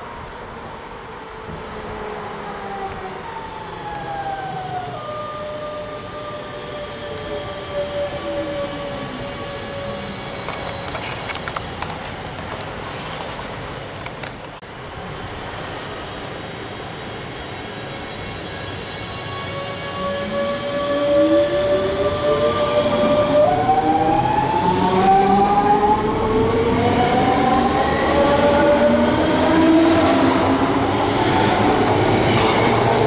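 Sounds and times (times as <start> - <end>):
train rumble: 0.0 - 33.0.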